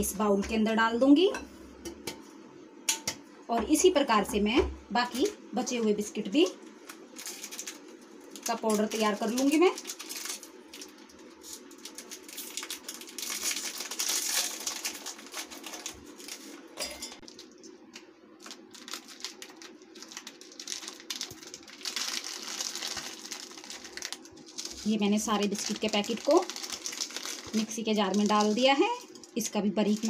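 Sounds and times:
plastic wrappers crinkling: 6.8 - 30.0.

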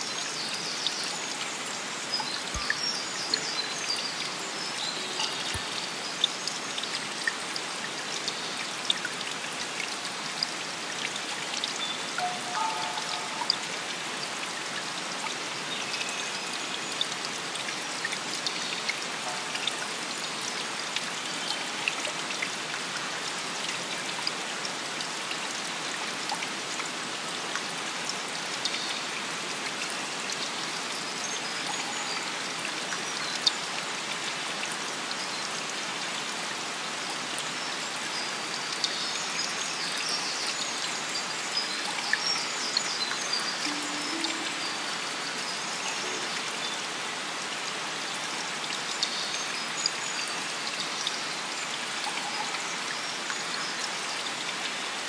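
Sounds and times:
water trickling and splashing: 0.0 - 55.0
water drops pattering: 2.4 - 4.0, 12.2 - 13.9.

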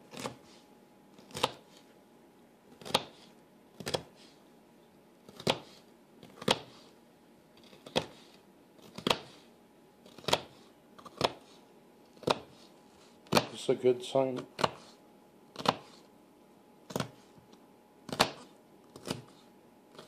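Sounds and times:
knife chopping on cutting board: 0.1 - 0.5, 1.3 - 1.8, 2.8 - 4.2, 5.3 - 6.8, 7.6 - 9.4, 10.1 - 11.5, 12.2 - 12.6, 13.2 - 13.6, 14.4 - 15.0, 15.6 - 16.0, 16.9 - 17.2, 18.1 - 19.4.

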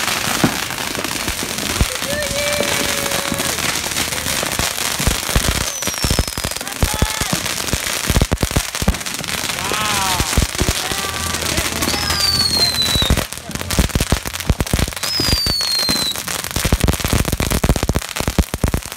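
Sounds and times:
falling firework whistles: 0.0 - 6.6, 11.8 - 13.3, 14.6 - 17.6
firecrackers banging and crackling: 0.0 - 18.9.

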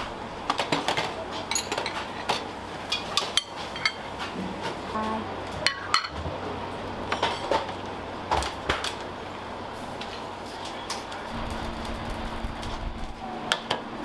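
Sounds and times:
utensils and dishes clinking: 0.5 - 4.8, 5.6 - 6.2, 7.1 - 7.8.

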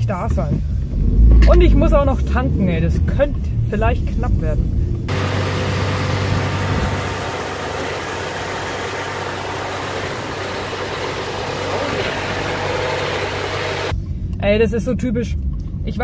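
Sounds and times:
engine-like hum: 0.0 - 16.0
fuel pump noise: 5.1 - 13.9.

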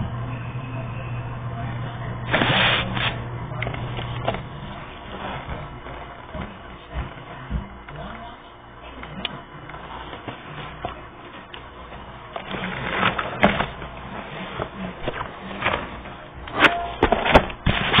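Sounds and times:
paper pages rustling: 11.9 - 18.0.

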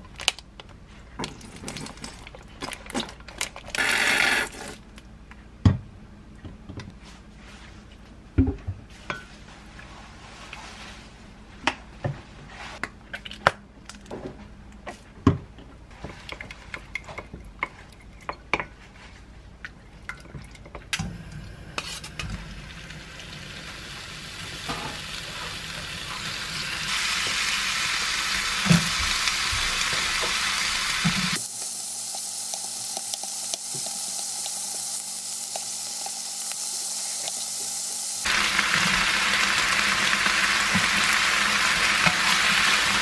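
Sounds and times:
meat sizzling in frying pan: 22.7 - 43.0.

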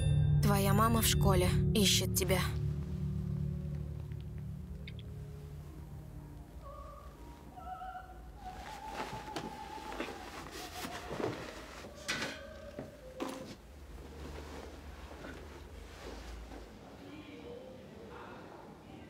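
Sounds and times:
background music of held notes: 0.0 - 13.8
rustling of bedding and clothes: 8.2 - 17.6.

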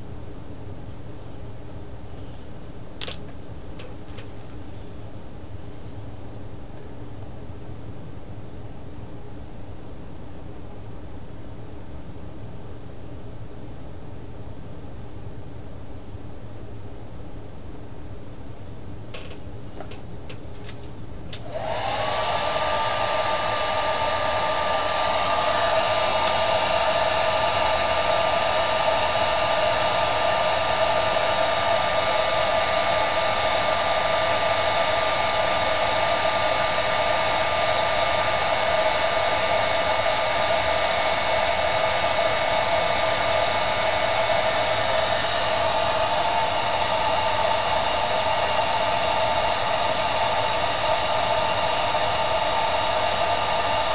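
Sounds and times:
hair dryer blowing: 20.6 - 53.9.

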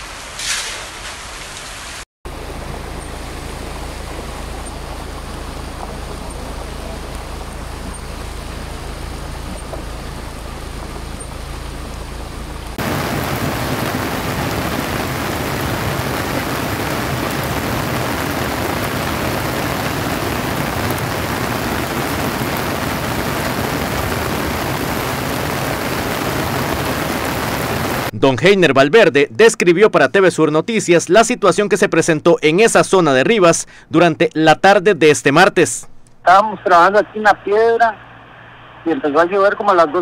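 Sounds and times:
floodwater rushing: 0.0 - 28.1
rain hiss: 0.0 - 28.1, 36.3 - 40.0
low hum: 2.3 - 28.3.

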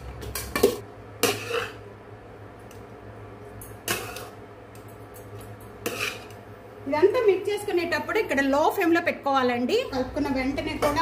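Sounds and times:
metal spoon scraping a pan: 0.6 - 1.8, 3.8 - 4.4, 5.8 - 6.4.

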